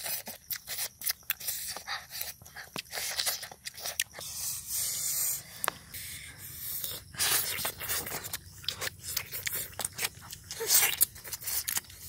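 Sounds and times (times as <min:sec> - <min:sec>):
chewing and biting crackles: 0:00.0 - 0:12.0
steady hiss: 0:04.2 - 0:08.1.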